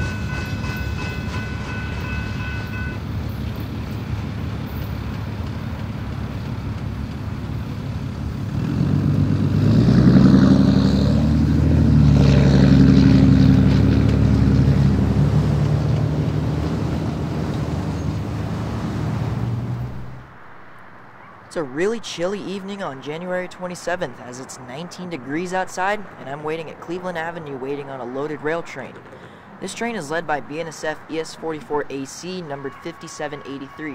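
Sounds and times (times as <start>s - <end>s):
train horn chord: 0.0s - 3.0s
freight train rumbling past: 0.0s - 20.3s
diesel locomotive engine drone: 0.0s - 21.1s.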